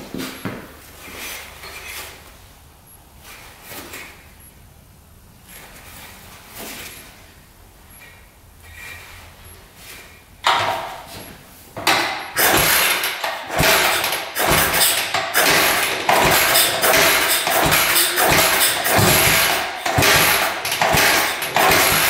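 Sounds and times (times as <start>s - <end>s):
motorcycle engine starting: 0.0s - 22.0s.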